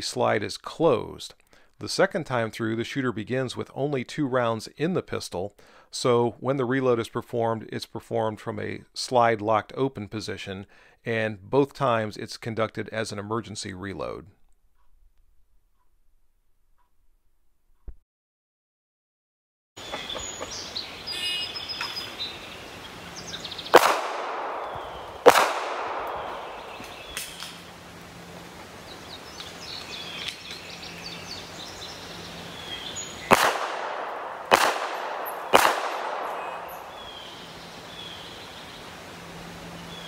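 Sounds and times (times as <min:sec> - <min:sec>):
pistol shots with echo: 0:23.7 - 0:27.6, 0:33.3 - 0:37.3.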